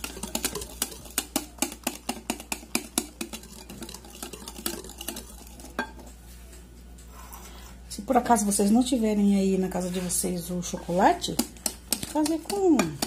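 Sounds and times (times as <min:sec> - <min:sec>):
whisk clicking against glass bowl: 0:00.0 - 0:06.1, 0:11.2 - 0:13.0.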